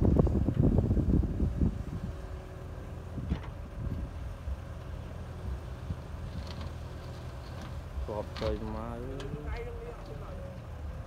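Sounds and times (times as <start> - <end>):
diesel engines rumbling: 0.0 - 11.0.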